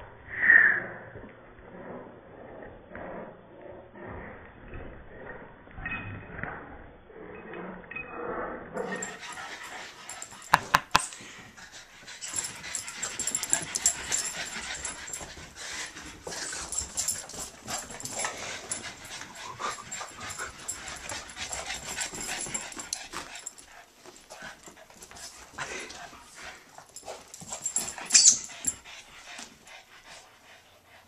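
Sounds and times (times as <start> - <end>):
dogs scuffling: 8.9 - 29.7
dog whimpering: 28.1 - 28.8.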